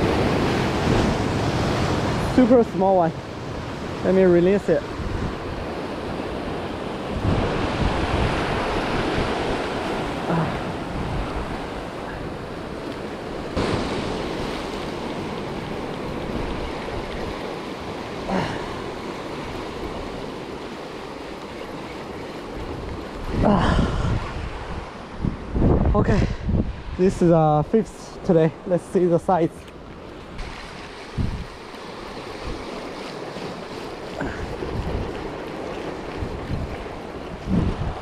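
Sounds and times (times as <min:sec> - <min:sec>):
surf washing around rocks: 0:00.0 - 0:38.0
wind on microphone: 0:04.9 - 0:12.6, 0:22.6 - 0:27.6, 0:30.3 - 0:38.0.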